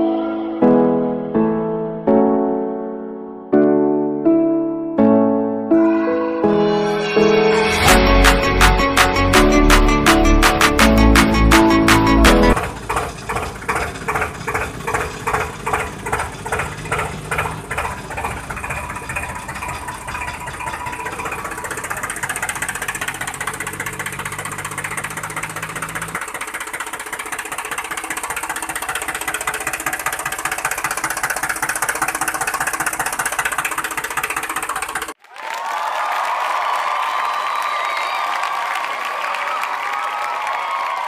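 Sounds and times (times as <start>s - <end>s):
background music with a beat: 7.3s - 12.6s.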